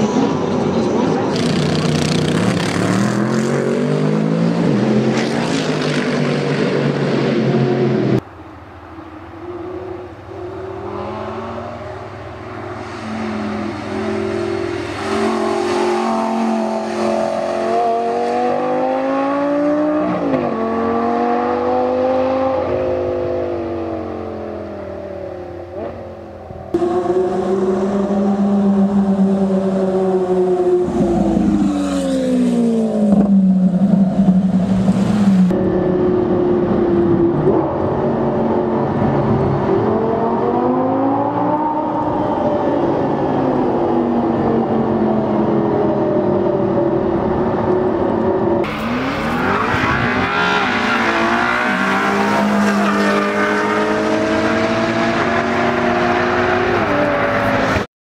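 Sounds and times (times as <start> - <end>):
engine heard inside car in tunnel: 17.6 - 52.8.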